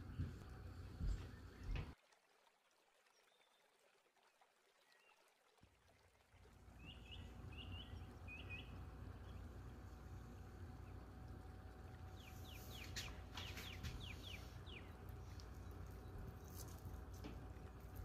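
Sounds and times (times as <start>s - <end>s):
low background rumble: 0.0s - 2.0s, 6.1s - 18.0s.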